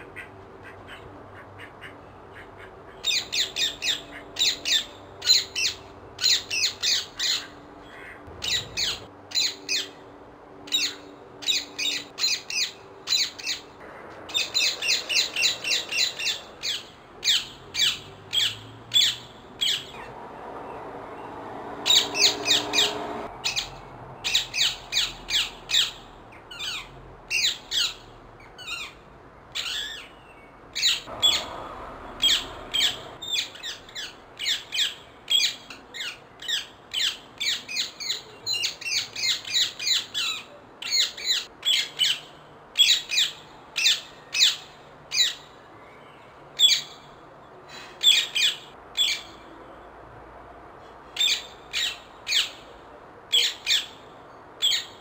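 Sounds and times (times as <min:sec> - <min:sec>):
parakeet squawking: 0:00.2 - 0:10.0, 0:14.3 - 0:20.1, 0:21.9 - 0:28.0.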